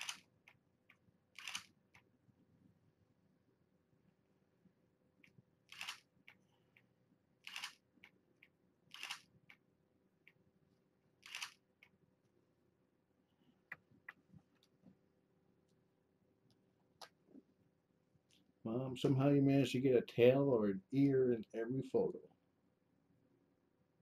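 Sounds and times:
camera shutter clacks: 0.0s - 0.2s, 1.4s - 1.7s, 5.7s - 6.1s, 7.4s - 7.8s, 8.9s - 9.3s, 11.2s - 11.6s.

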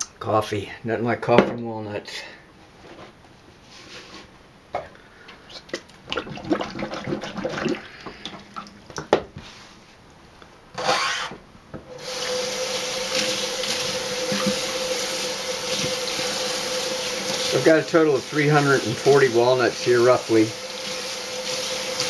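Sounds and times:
hand sloshing water in sink: 5.7s - 8.8s, 12.0s - 20.5s
faucet running into sink: 11.9s - 22.0s
water splash: 12.0s - 19.0s.

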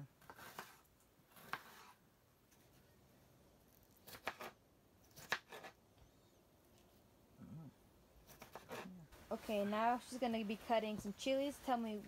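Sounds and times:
knife cutting cucumber on board: 0.2s - 2.0s, 4.0s - 5.8s, 8.2s - 8.9s.

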